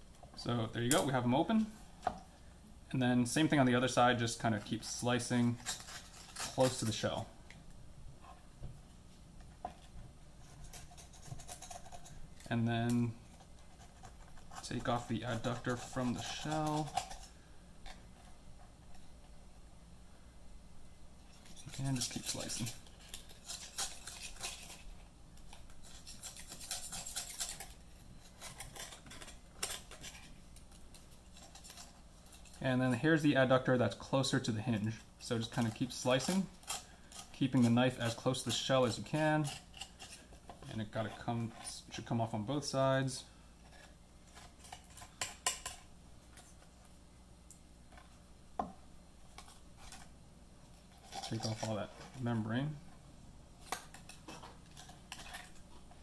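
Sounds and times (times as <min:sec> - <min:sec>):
knife scraping clam shell: 0:04.5 - 0:07.2, 0:10.4 - 0:18.0, 0:21.3 - 0:25.0, 0:25.6 - 0:32.6, 0:34.2 - 0:41.8, 0:43.6 - 0:46.6, 0:50.8 - 0:52.3, 0:53.7 - 0:56.0.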